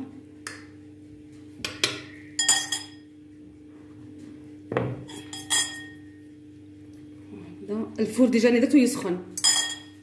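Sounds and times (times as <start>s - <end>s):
faint steady hum: 0.0s - 10.0s.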